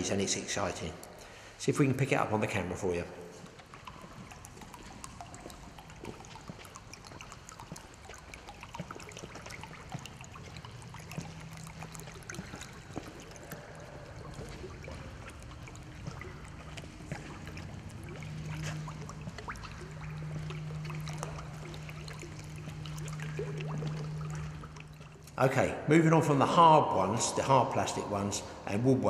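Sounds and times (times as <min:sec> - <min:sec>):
popper lure splashing across water: 0:03.4 - 0:25.4.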